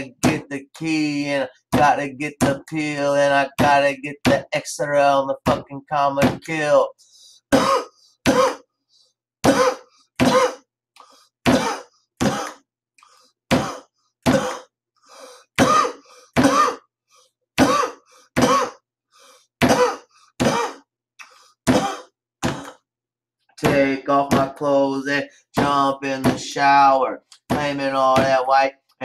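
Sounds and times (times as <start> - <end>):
man making cough-like grunts: 7.5 - 8.7, 9.4 - 10.7, 11.5 - 12.6, 13.5 - 14.7, 15.6 - 16.9, 17.6 - 18.8, 19.6 - 20.9, 21.7 - 22.8.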